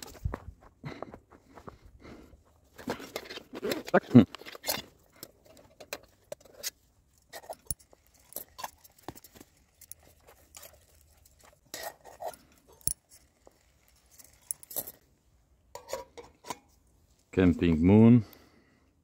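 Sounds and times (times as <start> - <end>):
metal camping gear clinking: 2.7 - 17.3.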